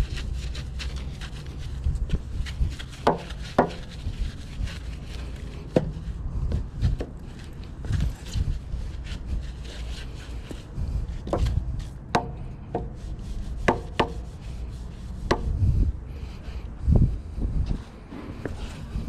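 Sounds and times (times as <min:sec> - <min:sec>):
brush bristles rasping: 0:00.0 - 0:15.8
brush knocking on metal: 0:02.9 - 0:04.0, 0:11.2 - 0:13.0, 0:13.6 - 0:14.3, 0:15.2 - 0:15.6.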